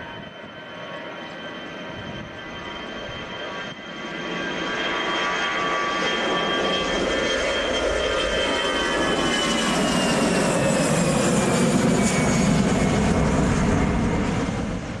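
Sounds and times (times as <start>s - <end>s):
jet engines roaring at takeoff: 0.0s - 15.0s.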